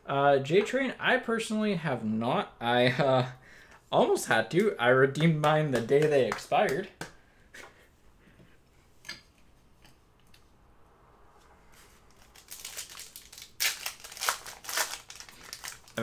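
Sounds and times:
foil wrapper crinkling and tearing: 12.1s - 16.0s.

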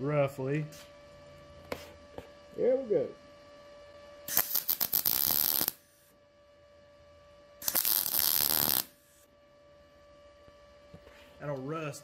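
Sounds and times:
welder arc crackling: 4.3s - 6.1s, 7.6s - 9.0s.

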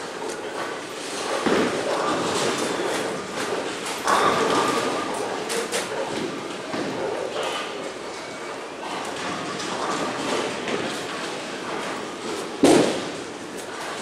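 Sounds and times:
bowling alley din: 0.0s - 14.0s
bowling ball rolling: 0.1s - 7.8s
bowling ball crashing into pins: 12.6s - 13.3s.

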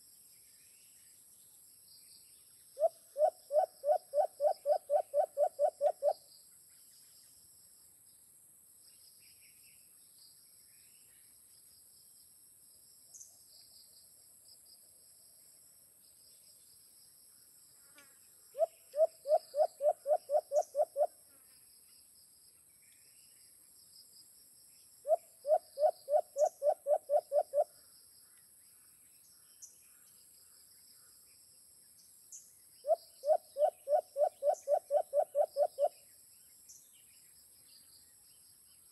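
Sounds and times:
high insect hum: 0.0s - 38.9s
dove low hooting: 2.8s - 6.2s, 18.6s - 21.1s, 32.8s - 35.9s.

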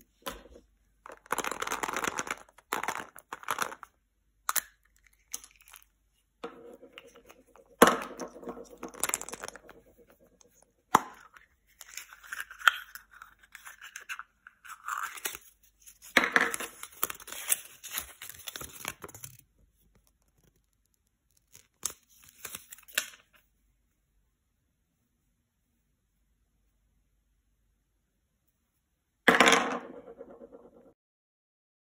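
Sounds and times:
small handling noises: 0.0s - 24.2s
paper crinkling: 11.8s - 23.4s.

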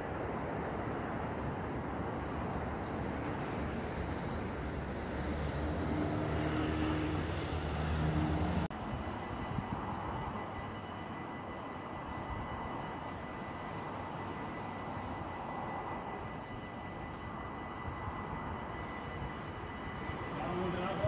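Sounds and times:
outdoor background noise: 0.0s - 21.0s
road traffic: 0.0s - 21.0s
vehicle engine hum: 2.6s - 10.4s.

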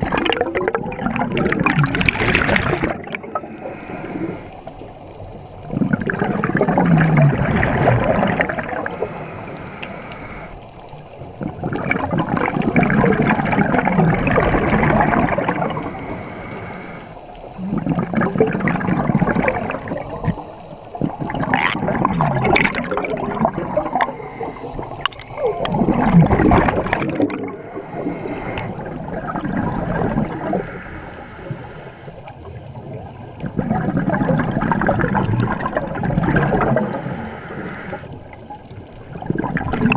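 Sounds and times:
gurgling exhaled bubbles: 0.0s - 16.7s, 17.3s - 39.9s.

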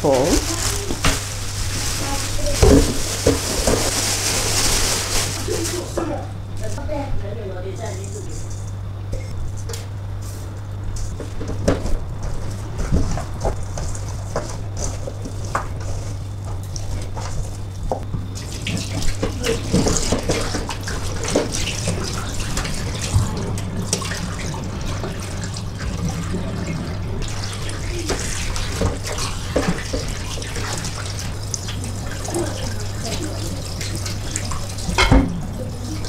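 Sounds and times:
tap water running into sink: 18.3s - 36.0s
hands rubbing and splashing chicken: 18.4s - 35.0s.

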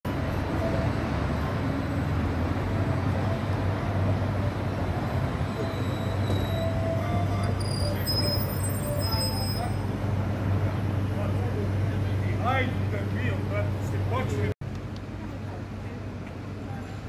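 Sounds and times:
street noise: 0.0s - 17.0s
tram humming on rails: 0.1s - 17.0s
high-pitched squeaks: 5.3s - 9.9s.

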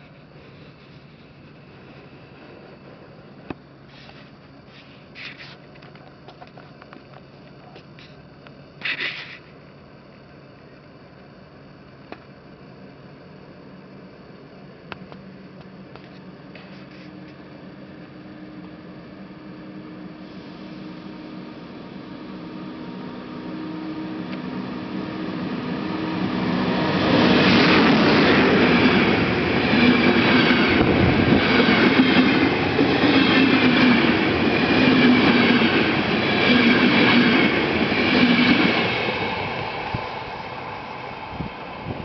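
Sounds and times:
train passing at speed: 1.5s - 3.9s, 13.8s - 42.0s.

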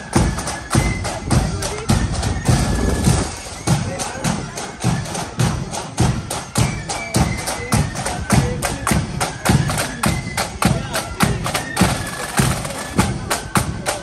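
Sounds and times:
marching band playing: 0.0s - 14.0s
bass drum beating: 1.3s - 4.0s.

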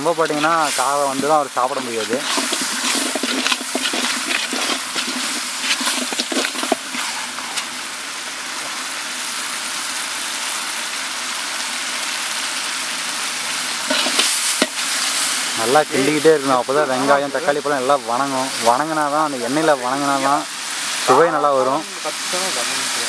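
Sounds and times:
ladle scraping metal pot: 0.0s - 7.8s, 13.9s - 14.8s
masala sizzling in oil: 0.0s - 23.0s.

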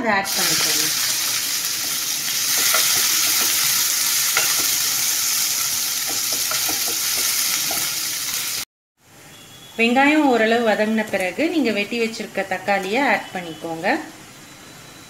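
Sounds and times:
onions sizzling in hot oil: 0.2s - 8.7s
spatula tapping and scraping pan: 4.4s - 4.8s, 6.0s - 7.9s.

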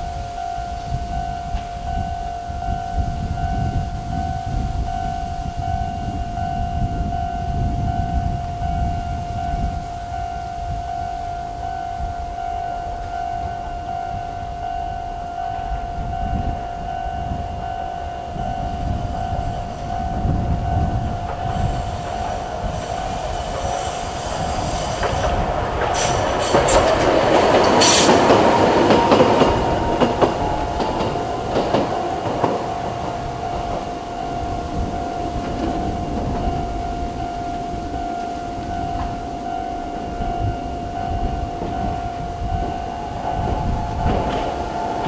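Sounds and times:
electronic crossing bell ringing: 0.0s - 25.0s, 26.2s - 45.0s
tram passing: 0.0s - 45.0s.

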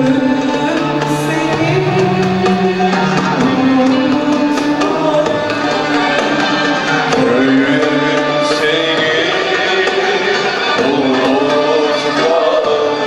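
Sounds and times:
woman singing: 0.0s - 8.4s
violins: 0.0s - 13.0s
hand drum beat: 0.4s - 10.2s.

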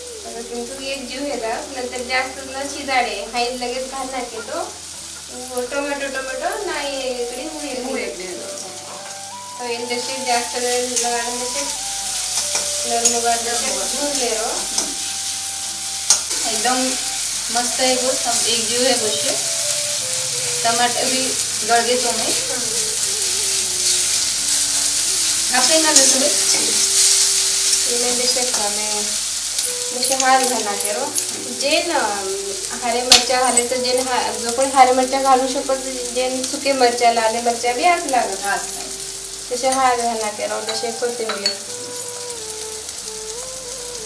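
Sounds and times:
food sizzling in hot oil: 0.0s - 44.0s
spatula scraping and tapping pan: 10.9s - 15.1s.

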